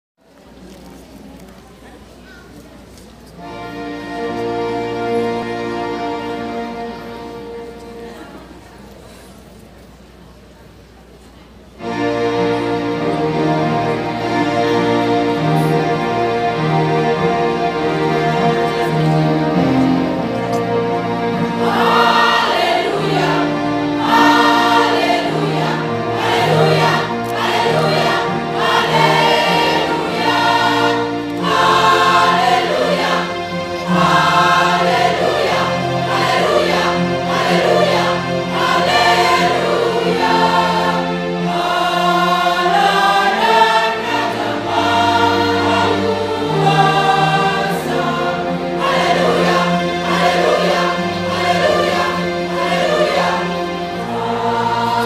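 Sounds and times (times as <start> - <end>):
mixed choir singing: 12.4 - 55.0.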